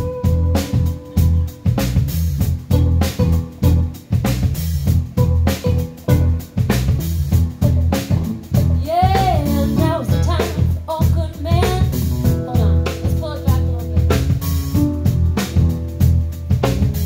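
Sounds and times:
drum kit beat: 0:00.0 - 0:17.0
live funk band playing: 0:00.0 - 0:17.0
person singing: 0:08.8 - 0:14.1.

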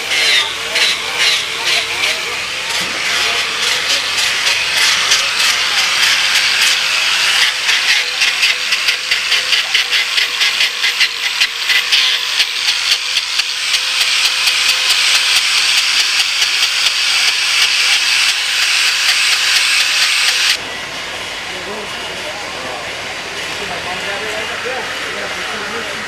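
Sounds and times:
angle grinder sanding wood: 0:00.0 - 0:20.6.

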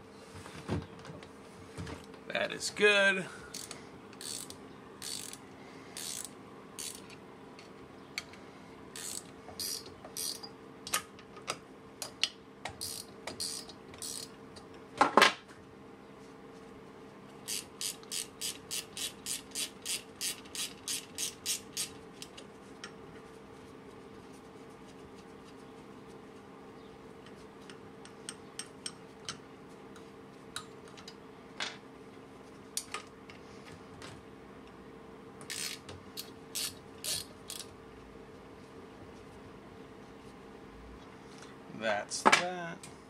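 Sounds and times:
ratchet wrench clicking: 0:03.5 - 0:05.4, 0:06.0 - 0:07.1, 0:09.0 - 0:10.5, 0:12.8 - 0:14.3, 0:17.5 - 0:22.0, 0:35.5 - 0:37.7.

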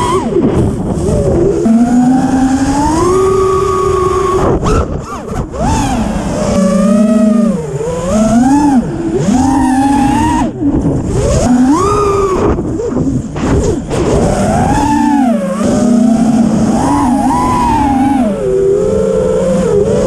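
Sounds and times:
drone motors and props whining: 0:00.0 - 0:20.0.

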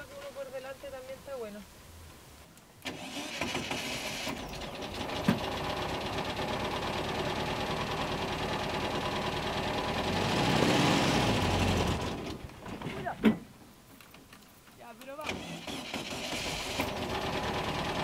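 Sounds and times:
van engine starting and revving: 0:02.8 - 0:12.5, 0:15.2 - 0:18.0.

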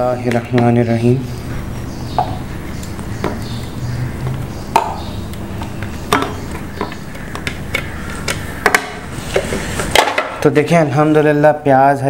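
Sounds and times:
utensil scraping containers: 0:00.2 - 0:10.5
sharp clicks: 0:02.2 - 0:09.0.

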